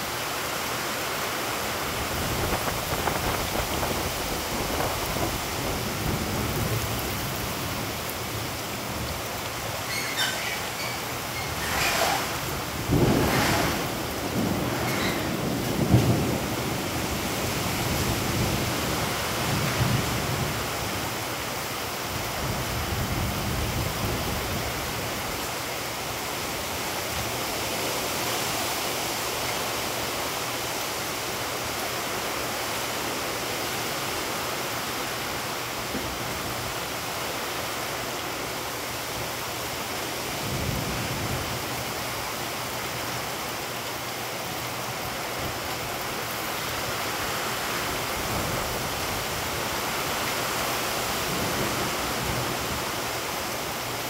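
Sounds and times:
heavy rain on pavement: 0.0s - 54.0s
low thunder rumbling: 11.6s - 18.8s.

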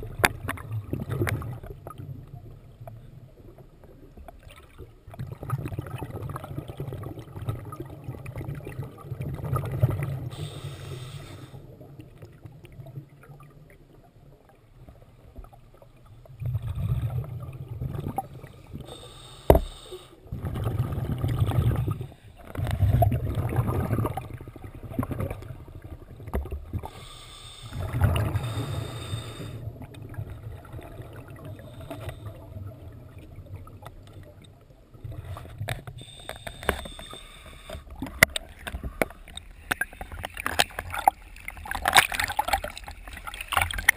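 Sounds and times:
regulator bubbles underwater: 0.0s - 43.9s.

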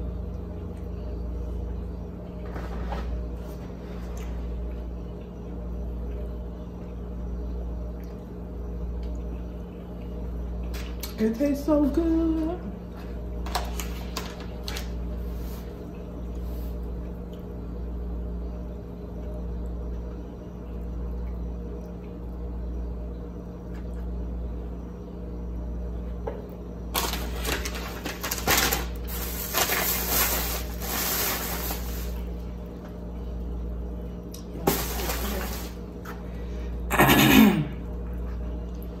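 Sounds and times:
low steady hum: 0.0s - 39.0s
plastic bag rustling: 26.9s - 32.6s, 34.6s - 35.8s.

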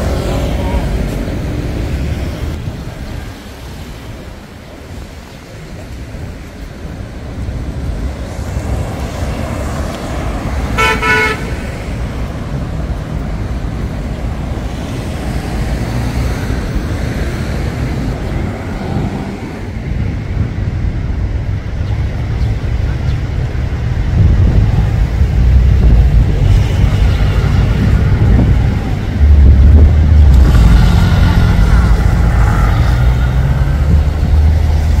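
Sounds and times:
city traffic rumble: 0.0s - 35.0s
vehicle horn toot: 10.8s - 11.6s.

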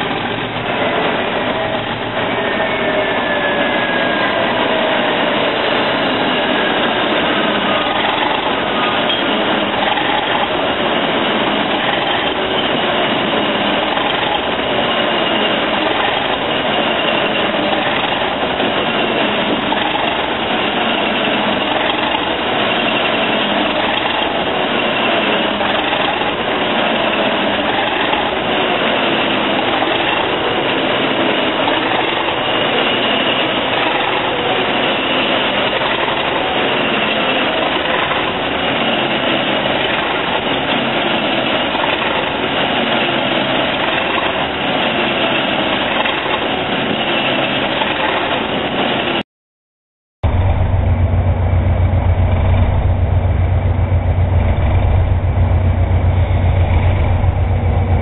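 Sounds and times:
diesel locomotive engine running: 0.0s - 49.2s, 50.2s - 58.0s
high whine: 50.2s - 58.0s.

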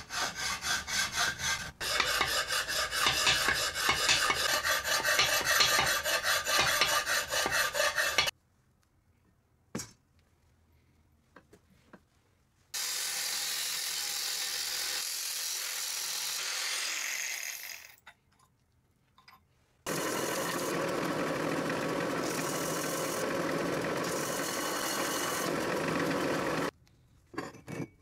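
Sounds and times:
power tool running on metal: 7.8s - 8.3s, 19.9s - 26.7s.

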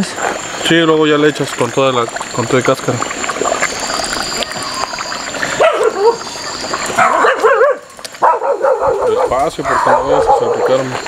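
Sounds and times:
pork crackling in hot lard: 0.0s - 11.0s
short wavering whine: 3.0s - 7.3s.

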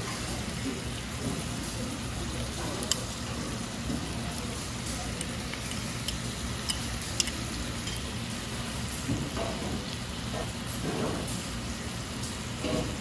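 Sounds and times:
meat sizzling on griddle: 0.0s - 13.0s
metal tongs clicking on plate: 2.8s - 3.0s, 5.2s - 8.1s.

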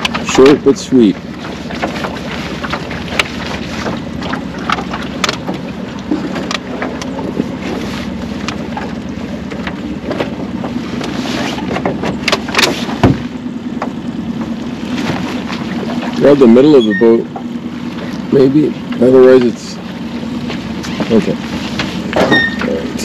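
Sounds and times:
outboard motor running: 0.0s - 23.0s
heavy thump: 11.8s - 14.0s.

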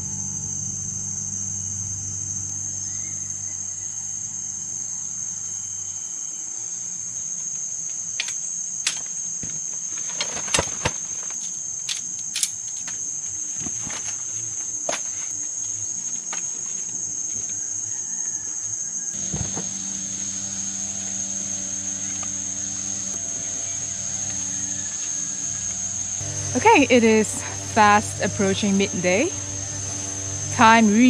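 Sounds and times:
insects droning: 0.0s - 31.0s
camp gear clicking and knocking: 8.2s - 13.0s.

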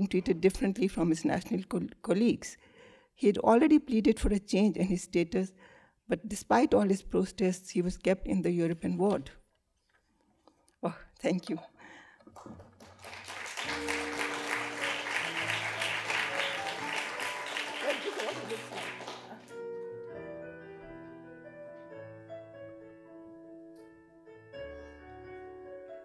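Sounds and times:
audience applause: 12.3s - 19.6s
soft instrumental music: 13.5s - 26.0s.

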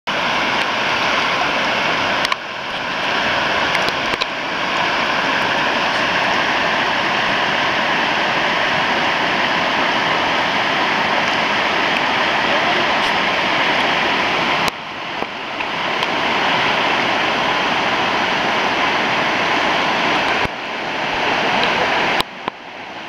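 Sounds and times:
river rapids rushing: 0.1s - 23.0s.

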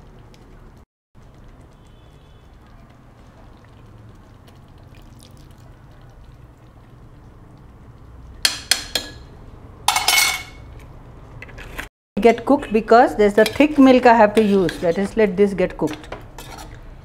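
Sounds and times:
faint kitchen background: 0.0s - 17.0s
metal utensil clinking on pot: 9.9s - 10.6s.

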